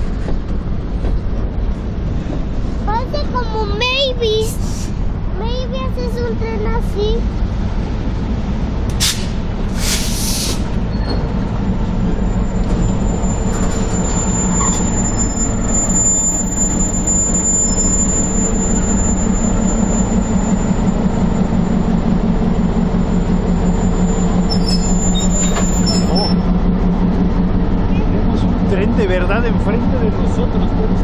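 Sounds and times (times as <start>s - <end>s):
diesel locomotive engine drone: 0.0s - 31.0s
brief hisses: 9.0s - 10.7s.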